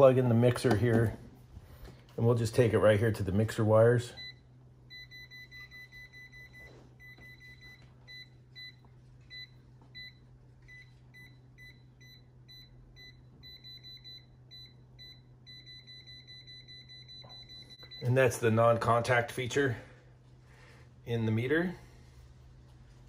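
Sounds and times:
voltage detector beeping: 4.2s - 18.4s.

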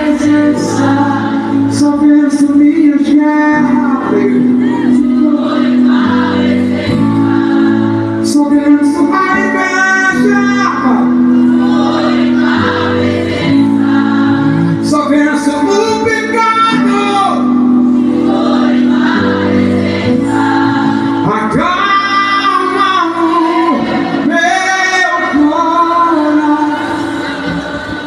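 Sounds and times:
man singing: 0.0s - 5.5s, 8.2s - 11.2s, 14.7s - 17.6s, 21.2s - 27.1s.

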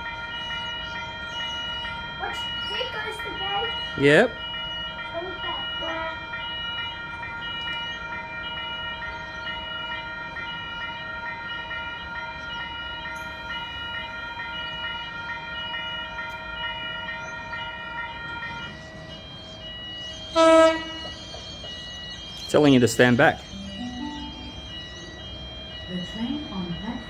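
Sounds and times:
level crossing bell ringing: 0.0s - 27.0s
loud horn-like tone: 20.3s - 21.2s.

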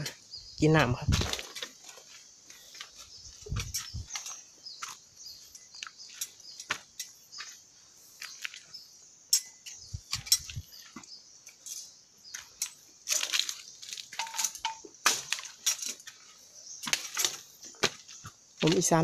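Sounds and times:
footsteps on rocks and dry leaves: 1.0s - 8.9s, 12.3s - 19.0s.

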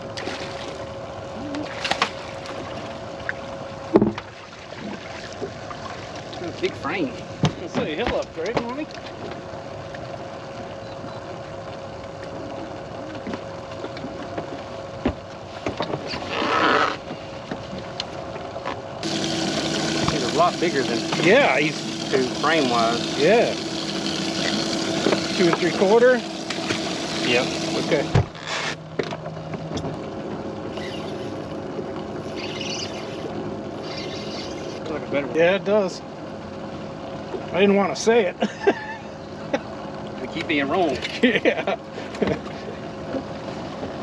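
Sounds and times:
water noise: 0.0s - 16.6s, 17.6s - 38.3s
low mechanical hum: 0.0s - 44.0s
wind: 0.0s - 44.0s
electric trolling motor whine: 16.0s - 37.7s.

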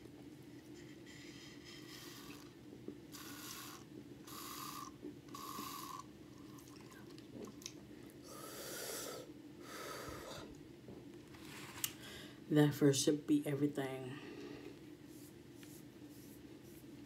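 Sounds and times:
slurping sips through a straw: 1.1s - 7.1s
breathy exhale: 8.2s - 10.5s.

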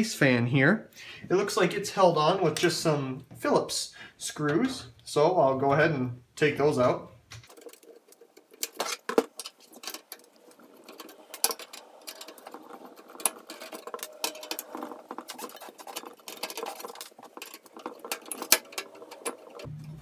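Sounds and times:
screwdriver clicks and metal scrapes: 7.4s - 19.7s.

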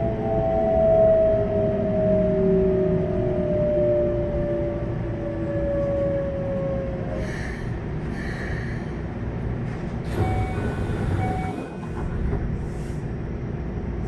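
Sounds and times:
wheels rumbling on rail: 0.0s - 14.0s.

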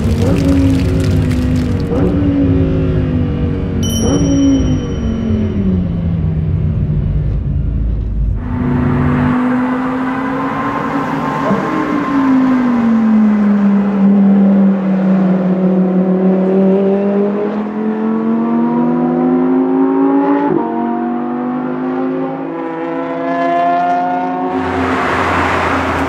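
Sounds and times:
sports car engine accelerating: 5.2s - 26.0s.

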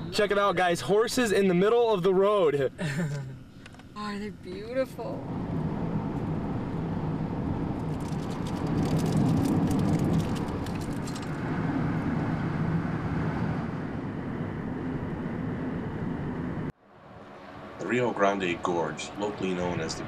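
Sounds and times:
car engine hum: 0.0s - 20.0s
road and wind noise: 0.0s - 20.0s.

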